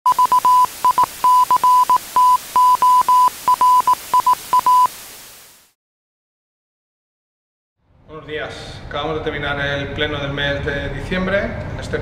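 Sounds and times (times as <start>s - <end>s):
morse code beeps: 0.1s - 5.0s
tv static hiss: 0.1s - 5.8s.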